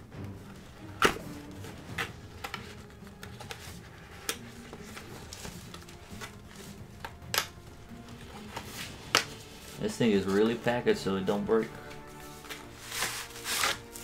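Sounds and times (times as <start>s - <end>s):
peeling tape off cardboard box: 12.8s - 14.0s.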